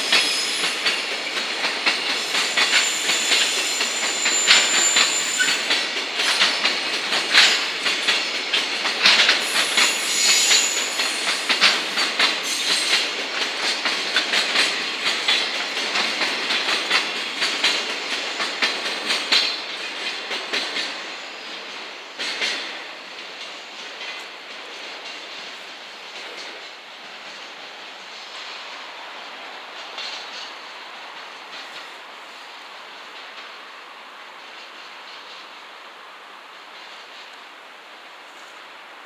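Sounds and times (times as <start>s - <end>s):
wheels clacking over rail joints: 0.0s - 27.6s
train running rumble: 0.0s - 39.0s
high wheel squeals: 2.1s - 5.7s, 9.4s - 11.6s.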